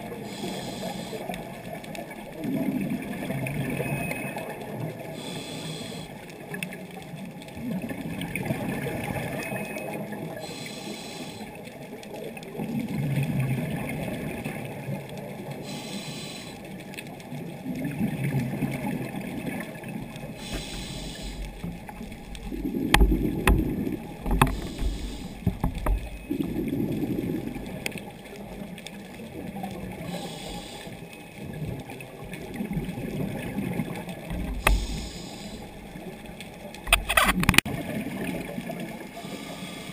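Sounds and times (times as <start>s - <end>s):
exhaled bubbles gurgling: 0.0s - 39.9s
regulator inhale hiss: 0.2s - 1.4s, 5.2s - 6.2s, 10.4s - 11.6s, 15.6s - 16.8s, 20.4s - 21.7s, 24.4s - 25.5s, 30.0s - 31.1s, 34.6s - 35.8s, 39.2s - 39.9s.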